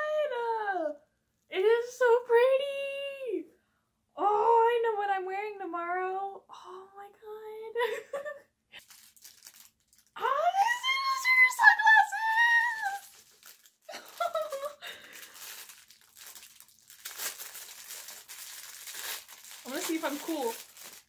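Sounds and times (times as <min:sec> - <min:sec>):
plastic packaging crinkling: 0:08.8 - 0:21.0.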